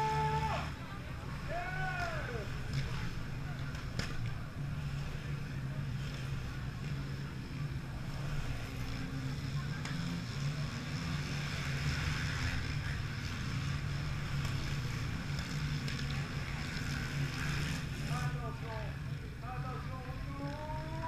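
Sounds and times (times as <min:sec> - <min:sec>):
broad noisy haze: 0:00.0 - 0:21.0
engine humming: 0:00.0 - 0:21.0.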